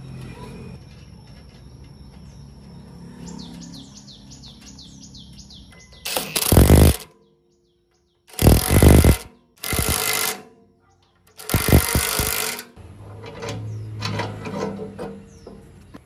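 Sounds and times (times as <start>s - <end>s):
pulsing power tool bursts: 6.1s - 7.1s, 8.3s - 10.4s, 11.4s - 12.6s.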